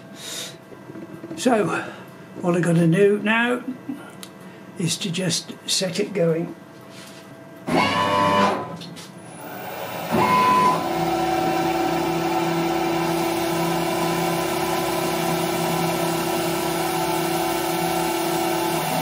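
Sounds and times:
machine spindle motor whine: 7.7 - 19.0.

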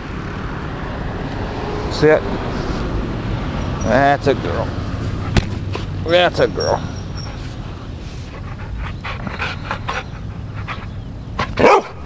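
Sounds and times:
dog panting: 6.4 - 7.6, 8.2 - 11.2.

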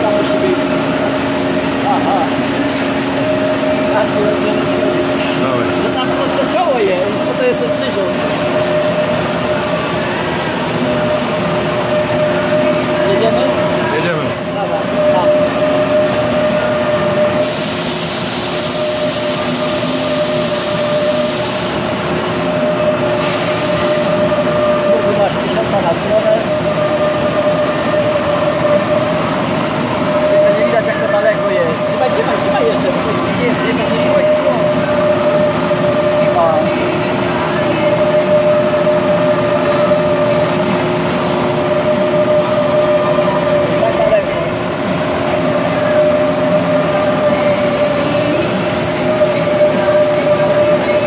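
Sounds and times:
milling machine drilling whine: 0.0 - 51.0.

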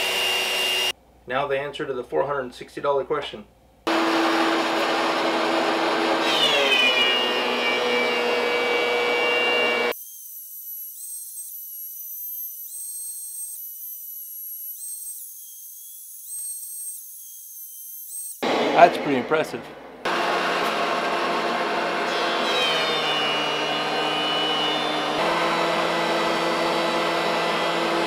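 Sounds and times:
thickness planer running: 3.9 - 10.0, 20.0 - 28.0.

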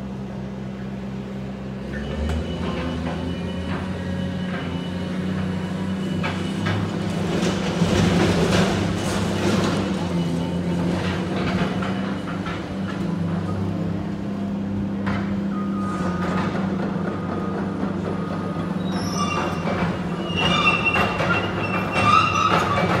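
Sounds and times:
excavator diesel engine running: 0.0 - 23.0
high metal screeching: 18.8 - 23.0.

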